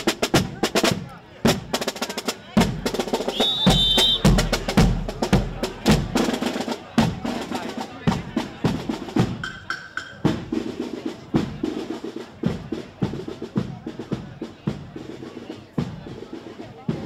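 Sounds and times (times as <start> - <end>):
bass and snare drums marching: 0.0 - 17.0.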